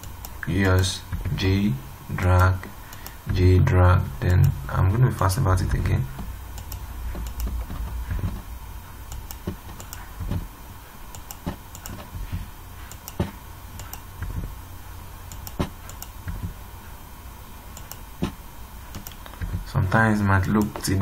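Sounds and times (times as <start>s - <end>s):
low steady hum: 0.0s - 21.0s
keyboard and mouse clicking: 6.6s - 8.4s, 9.1s - 10.4s, 11.1s - 12.2s, 12.9s - 14.4s, 15.3s - 16.5s, 17.7s - 19.6s.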